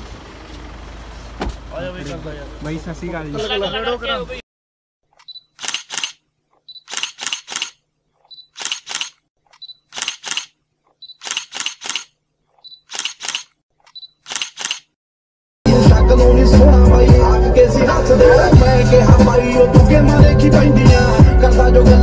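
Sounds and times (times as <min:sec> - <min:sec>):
camera shutter click-clack: 0:05.2 - 0:15.0.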